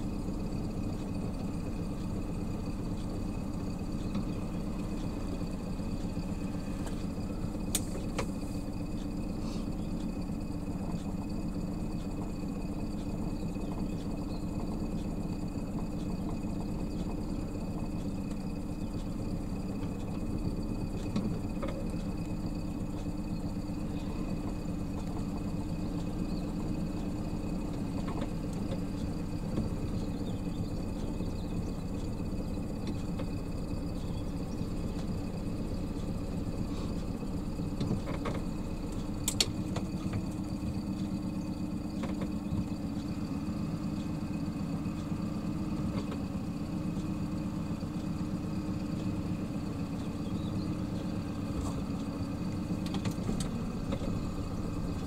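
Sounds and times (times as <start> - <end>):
boat engine humming: 0.0 - 55.0
sharp click: 39.2 - 39.9.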